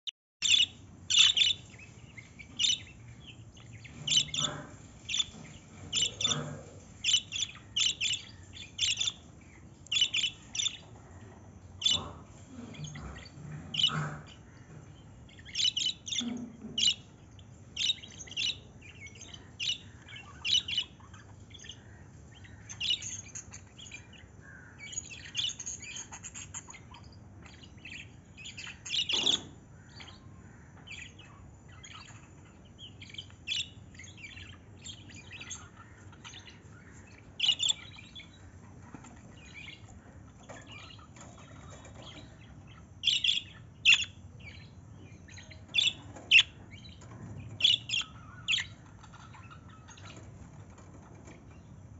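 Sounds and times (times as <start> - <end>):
budgerigars chirping: 0.4 - 51.3.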